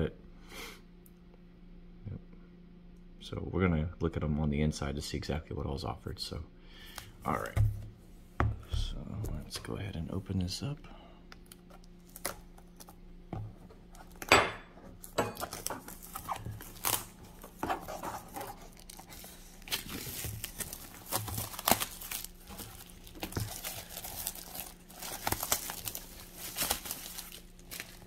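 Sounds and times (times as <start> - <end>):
plastic wrap crinkling and tearing: 11.3 - 13.0, 15.0 - 28.0.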